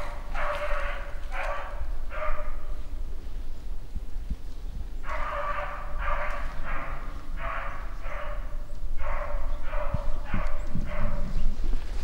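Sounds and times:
dog baying: 0.0 - 2.6, 5.0 - 11.2.

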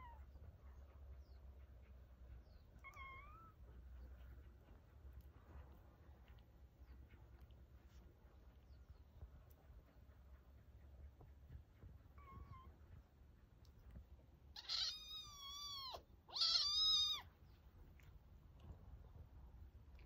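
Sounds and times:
kitten mewing: 14.6 - 17.3.

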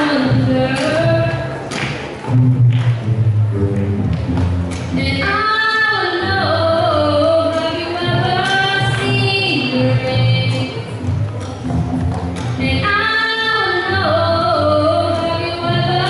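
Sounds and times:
plucked double bass: 0.0 - 16.0
girl singing: 5.0 - 10.9, 12.6 - 16.0.

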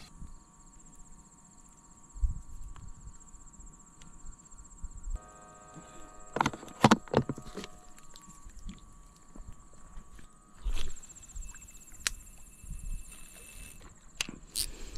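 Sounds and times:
night insects chirring: 0.0 - 14.9
fishing reel clicks and knocks: 11.9 - 14.9.

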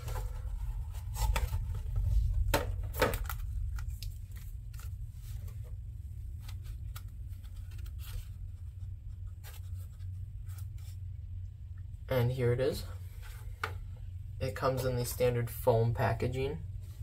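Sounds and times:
plastic packaging clicks and crinkles: 0.0 - 5.0
low hum: 0.0 - 17.0.

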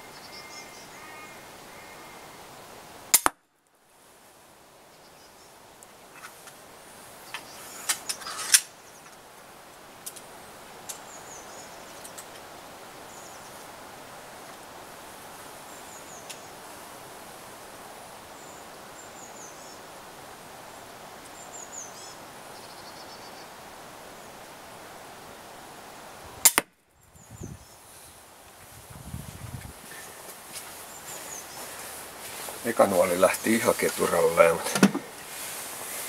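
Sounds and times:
steady outdoor hiss: 0.0 - 36.0
crossbow snap: 3.1 - 3.4, 26.4 - 26.7
small birds chirping: 7.2 - 9.2, 10.0 - 13.7, 15.6 - 16.8, 20.6 - 24.4, 27.0 - 28.2, 29.4 - 34.8.

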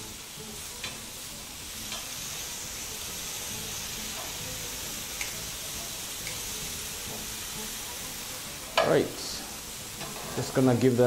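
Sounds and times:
slices sizzling on grill pan: 0.0 - 11.0
metal tongs clicking: 1.9 - 2.1.

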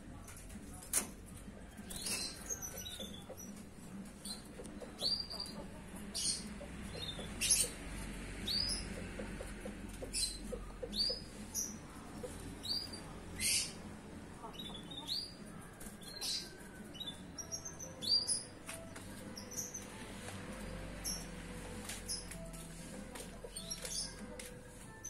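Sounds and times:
young canary chirping: 4.2 - 7.8, 8.4 - 13.8, 14.4 - 15.4.

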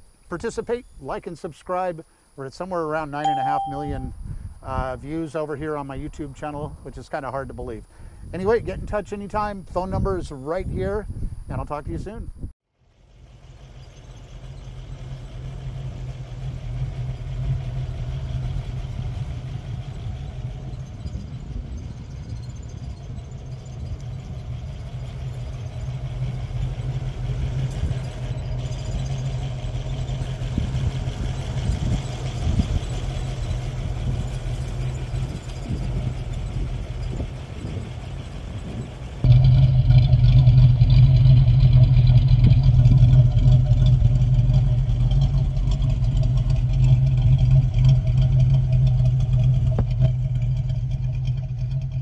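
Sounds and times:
car engine idling: 12.8 - 52.0.

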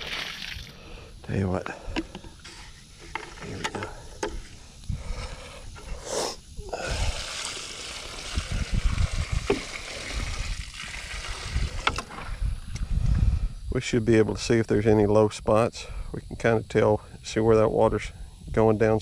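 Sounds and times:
water pouring onto soil: 0.0 - 0.8, 6.8 - 12.4
plastic bucket being handled: 8.9 - 11.1.

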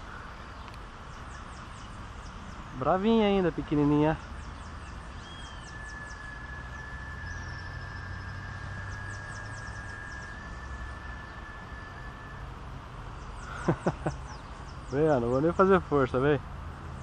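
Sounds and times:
low rumble and hiss: 0.0 - 17.0
high chirps: 1.3 - 15.9
thin high tone: 2.8 - 14.0.

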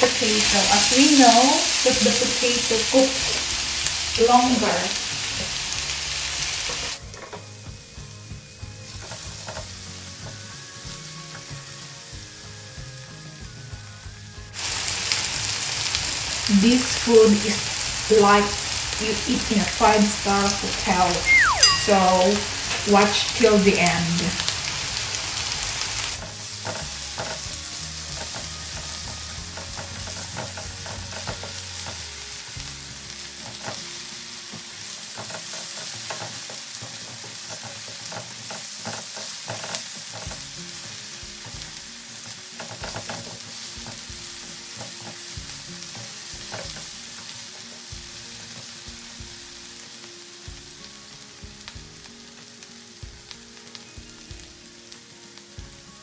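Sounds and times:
potatoes sizzling in oil: 0.0 - 56.0
wooden spatula scraping a pan: 26.2 - 32.0, 34.8 - 40.5.

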